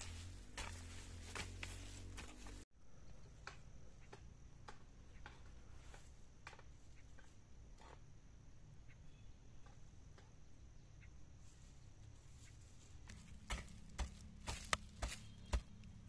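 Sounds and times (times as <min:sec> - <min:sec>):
hoe chopping stony soil: 0:00.0 - 0:02.6, 0:13.0 - 0:16.0.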